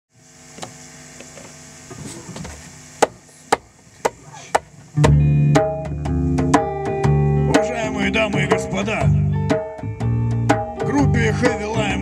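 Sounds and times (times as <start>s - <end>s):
bass guitar: 4.0s - 12.0s.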